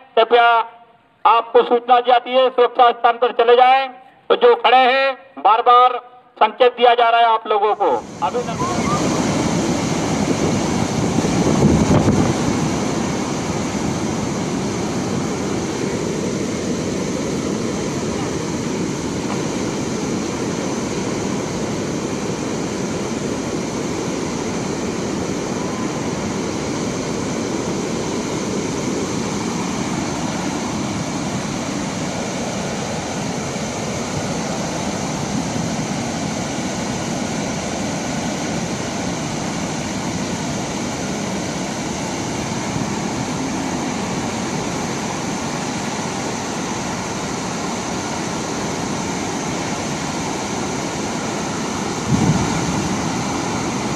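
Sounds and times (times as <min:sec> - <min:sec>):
water rushing through spillway: 0:07.8 - 0:53.9.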